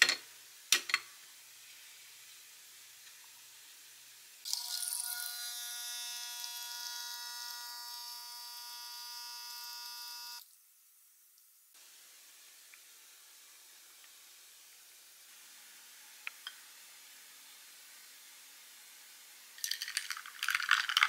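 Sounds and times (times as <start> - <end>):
espresso machine pump buzzing: 4.5 - 10.4.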